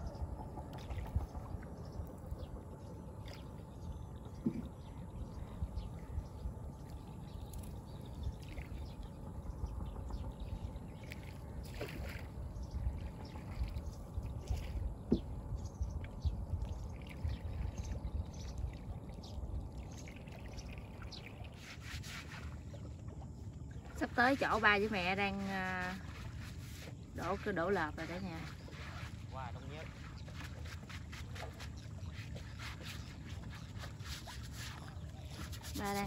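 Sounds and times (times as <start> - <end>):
steady low rumble: 0.0 - 21.5
shallow water sloshing and splashing: 0.0 - 36.0.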